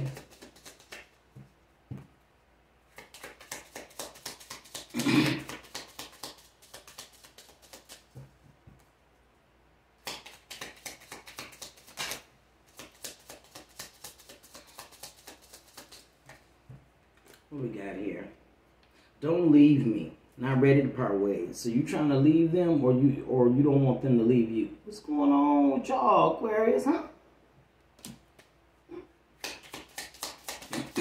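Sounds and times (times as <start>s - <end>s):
cards being shuffled: 0.0s - 2.1s, 2.9s - 8.9s, 10.0s - 16.5s, 17.1s - 17.5s, 28.0s - 28.5s, 29.4s - 31.0s.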